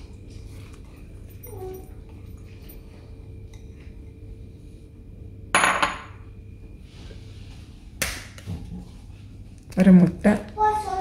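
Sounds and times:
dishes clinking: 5.6s - 6.2s.

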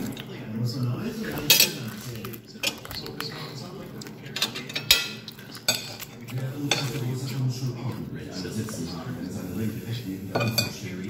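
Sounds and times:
cutlery clinking on plates: 1.2s - 7.4s, 10.2s - 11.0s.

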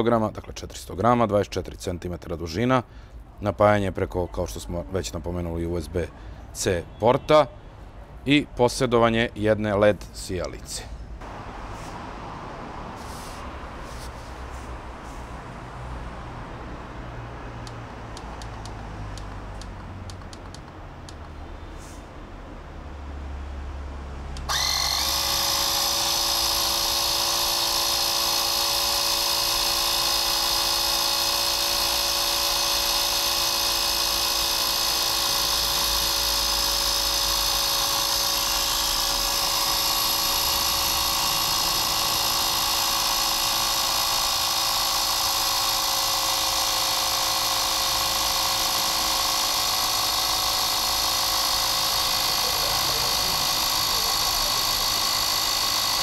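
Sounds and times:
mini compressor whining: 24.3s - 56.0s.

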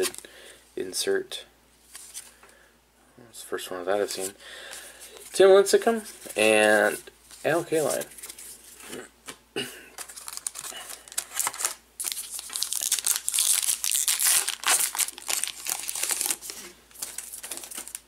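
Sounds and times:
wrapper crinkling and tearing: 10.0s - 18.0s.

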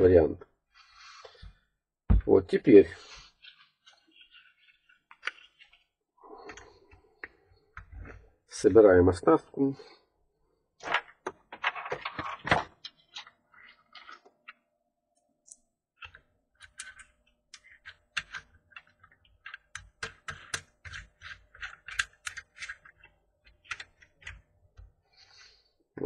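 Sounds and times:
small plastic clicks and knocks: 15.4s - 25.0s.

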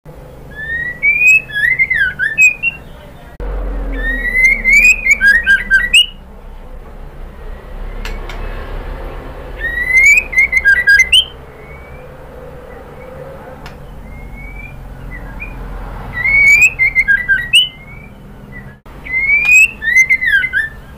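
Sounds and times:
bird whistled song with clicks: 0.6s - 2.8s, 4.2s - 6.2s, 9.6s - 12.0s, 16.2s - 20.8s.

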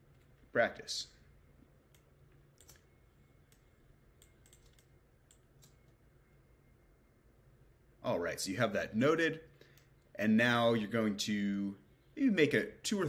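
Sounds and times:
keyboard and mouse clicks: 1.9s - 2.9s, 3.5s - 6.0s.

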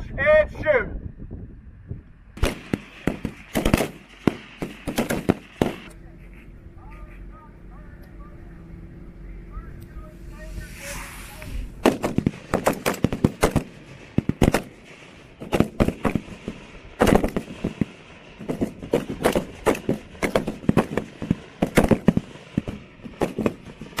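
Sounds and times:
rifle shots: 2.4s - 5.9s, 11.8s - 24.0s.

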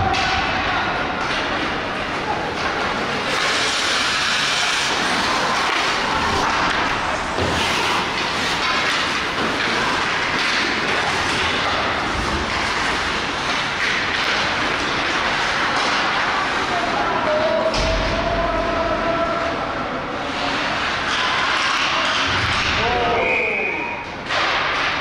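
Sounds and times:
hockey sticks and puck knocking: 0.0s - 16.8s, 20.4s - 23.2s
skate blades scraping ice: 1.4s - 17.4s.

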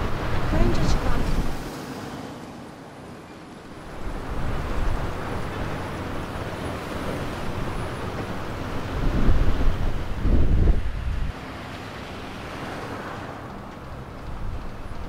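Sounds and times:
distant road traffic hum: 0.0s - 15.0s.

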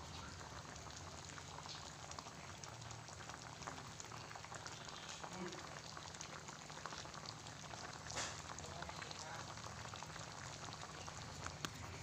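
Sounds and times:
coconut milk bubbling in pan: 0.0s - 12.0s.

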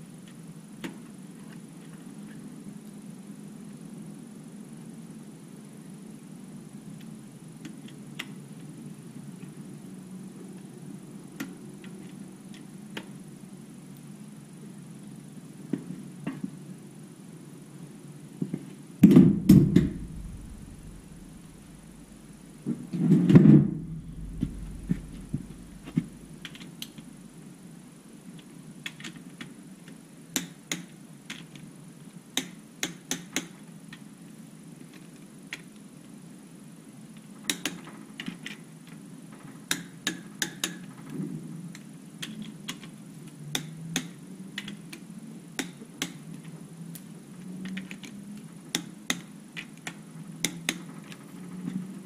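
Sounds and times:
steady low hum: 0.0s - 28.8s
heavy thump: 19.0s - 22.2s, 23.3s - 27.0s.

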